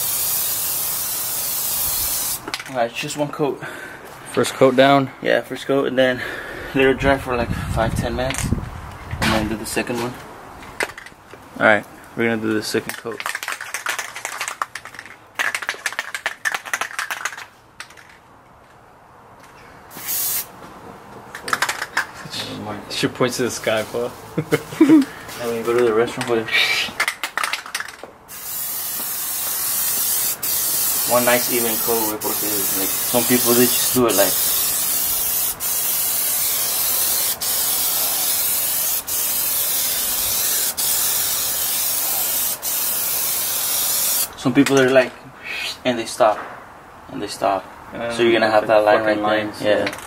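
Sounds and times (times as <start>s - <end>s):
spray can hissing: 0.0s - 2.5s, 19.9s - 20.5s, 28.3s - 44.3s
spray can ball rattling: 0.0s - 2.7s, 12.9s - 18.2s, 19.9s - 20.5s, 21.3s - 22.1s, 27.0s - 44.3s.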